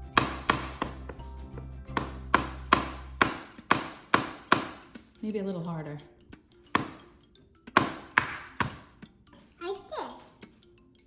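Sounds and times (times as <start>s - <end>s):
egg knocking on wooden board: 0.1s - 5.1s, 6.7s - 9.0s.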